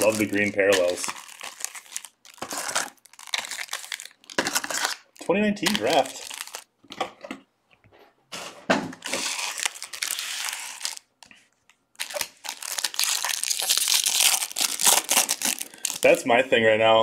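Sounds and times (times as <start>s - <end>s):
foil wrappers tearing and crumpling: 0.0s - 6.7s, 9.0s - 11.1s, 12.0s - 16.2s.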